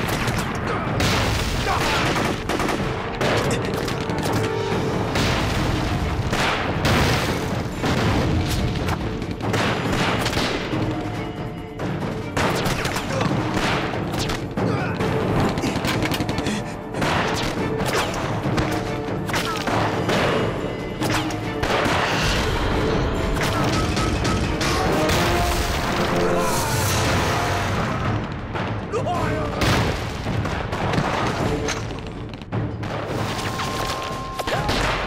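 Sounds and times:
dramatic background music: 0.0s - 35.0s
booming explosions: 4.9s - 10.8s, 26.9s - 31.6s.

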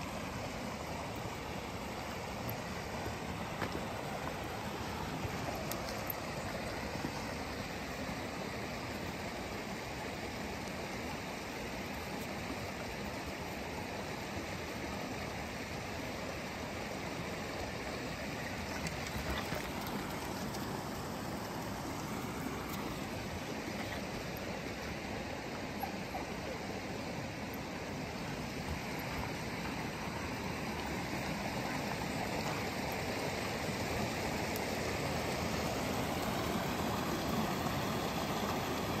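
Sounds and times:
creek rushing over rocks: 0.0s - 39.0s.

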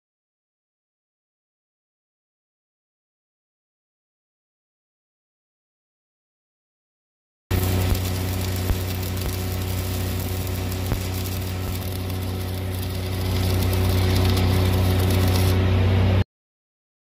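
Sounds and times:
welding arc crackling: 7.5s - 15.6s
welding rig engine drone: 7.5s - 16.2s.

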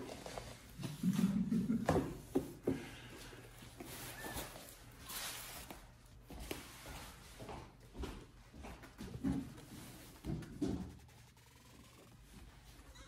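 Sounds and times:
soft rustling: 3.3s - 13.0s
faint squeak: 4.0s - 5.5s, 10.8s - 13.0s.

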